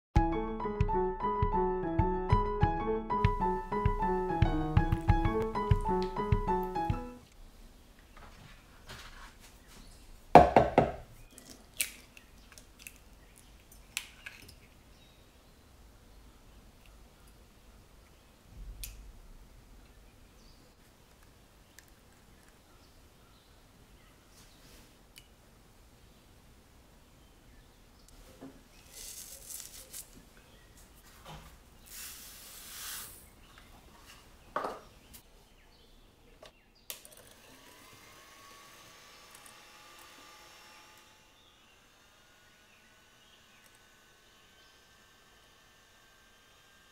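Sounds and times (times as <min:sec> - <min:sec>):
sharp knock: 0:10.4 - 0:11.0.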